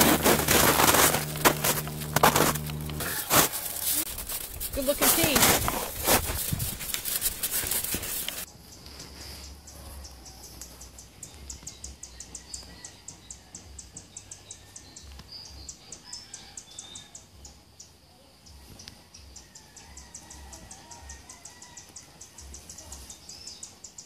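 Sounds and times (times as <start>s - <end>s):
insects chirping: 0.0s - 12.4s.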